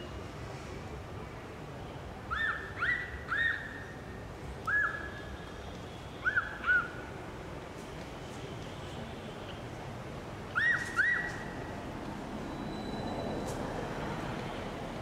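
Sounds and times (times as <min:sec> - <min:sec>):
high whistle-like animal calls: 0:04.7 - 0:05.2, 0:10.6 - 0:11.5.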